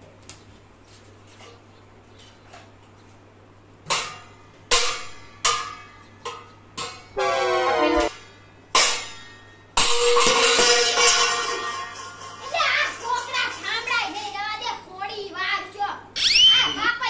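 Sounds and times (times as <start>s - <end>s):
steel plates clanging: 3.8s - 13.9s.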